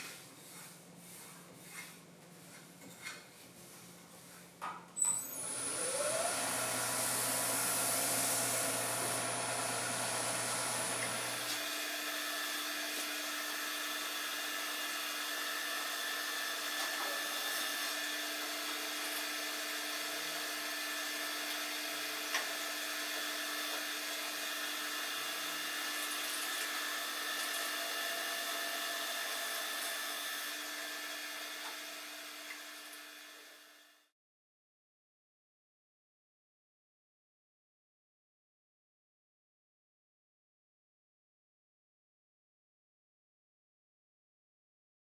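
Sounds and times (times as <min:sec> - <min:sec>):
paper towel buffing wood: 0:00.0 - 0:02.8, 0:06.3 - 0:11.6
wood lathe motor humming: 0:05.2 - 0:33.9.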